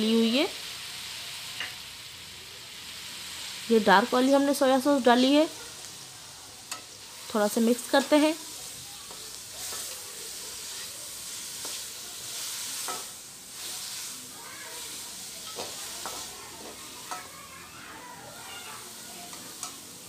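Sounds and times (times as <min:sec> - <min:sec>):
vegetables sizzling in a pan: 0:00.0 - 0:20.0
spatula clinking against pan: 0:06.7 - 0:06.9, 0:17.0 - 0:17.4, 0:19.3 - 0:19.8
spatula stirring and scraping: 0:06.7 - 0:19.9.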